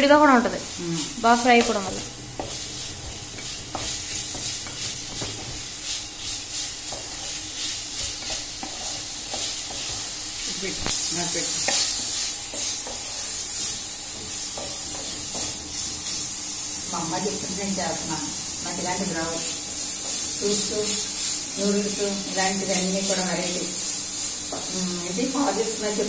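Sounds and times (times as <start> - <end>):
chicken sizzling in oil: 0.0 - 26.0
spatula scraping pan: 1.0 - 16.3.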